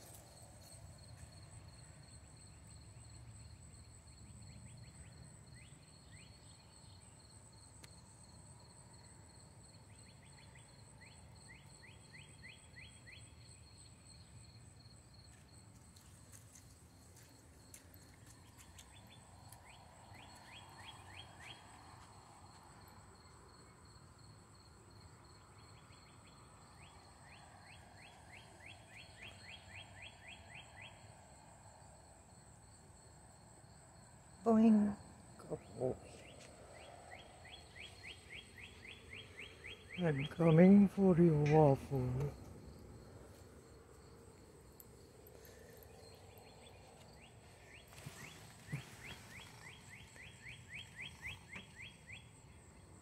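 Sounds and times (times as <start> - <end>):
insect rapid chirps: 0.0 - 53.0
insect pulsing trill: 33.6 - 53.0.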